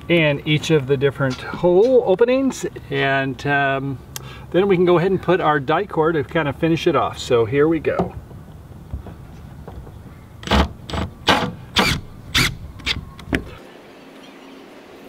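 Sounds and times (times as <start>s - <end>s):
cordless drill driving screws: 10.4s - 13.0s.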